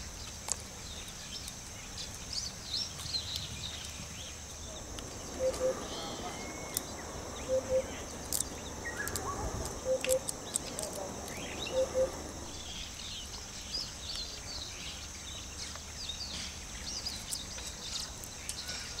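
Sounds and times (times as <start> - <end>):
birds chirping: 0.0 - 19.0
high-pitched insect drone: 4.4 - 13.2.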